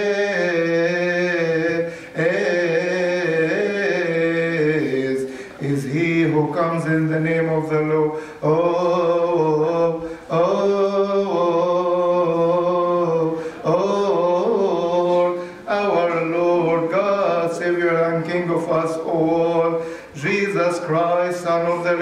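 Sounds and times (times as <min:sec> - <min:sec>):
man chanting a hymn: 0:00.0 - 0:22.0
breaths: 0:01.8 - 0:02.2, 0:05.2 - 0:05.6, 0:08.1 - 0:08.4, 0:10.0 - 0:10.3, 0:13.3 - 0:13.7, 0:15.4 - 0:15.7, 0:19.8 - 0:20.2.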